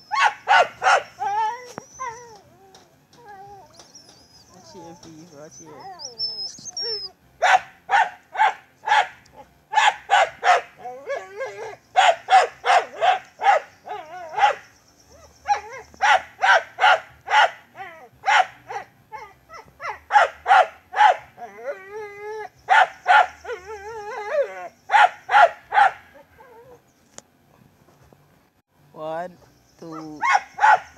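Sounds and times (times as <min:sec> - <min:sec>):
animal whining: 0:00.0 - 0:07.2, 0:10.4 - 0:16.2, 0:21.4 - 0:25.0, 0:26.1 - 0:26.9
animal yelping: 0:00.0 - 0:07.6, 0:08.9 - 0:16.6.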